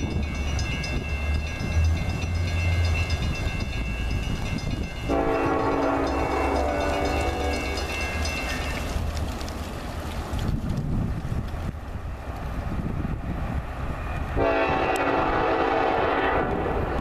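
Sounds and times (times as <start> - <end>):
diesel locomotive rumbling: 0.0 - 17.0
train air horn chord: 5.1 - 7.7, 14.4 - 16.8.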